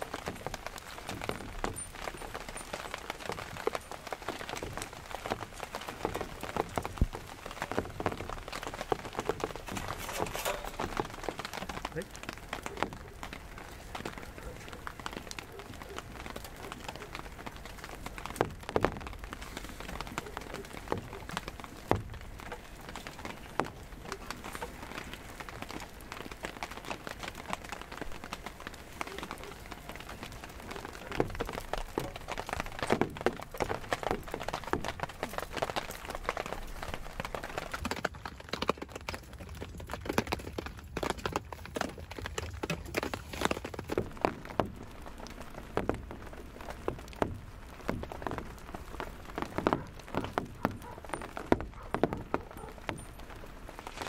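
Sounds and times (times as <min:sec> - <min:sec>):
rain falling: 0:00.0 - 0:54.0
sharp knocks and clicks: 0:37.9 - 0:53.3.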